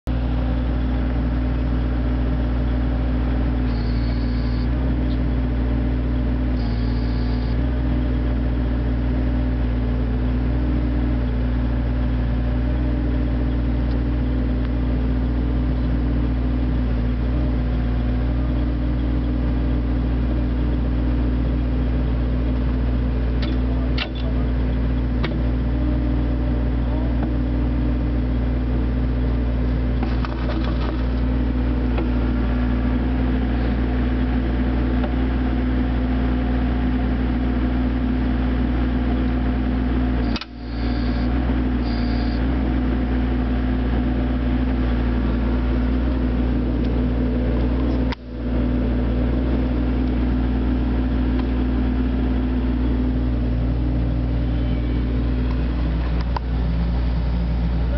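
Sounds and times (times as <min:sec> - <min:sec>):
excavator engine drone: 0:00.0 - 0:57.9
sharp metallic clicks: 0:40.3 - 0:40.6.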